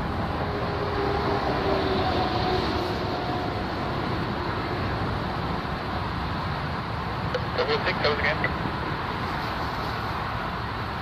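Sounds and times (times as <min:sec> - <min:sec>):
faint engine whine: 0:00.0 - 0:11.0
jet engines running at low power: 0:00.0 - 0:11.0.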